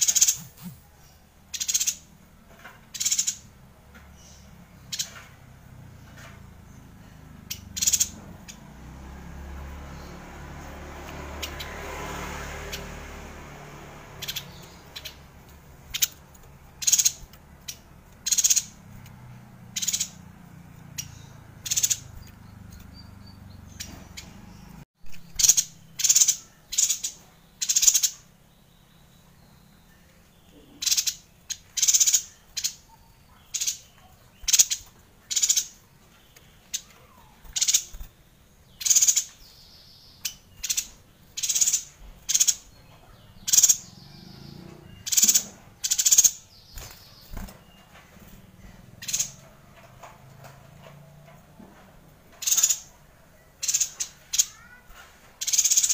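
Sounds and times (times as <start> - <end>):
bird chirping high and sharp: 0.0 - 2.2, 2.9 - 3.6, 4.2 - 5.3, 6.0 - 8.9, 13.6 - 28.4, 30.4 - 49.5, 52.3 - 55.9.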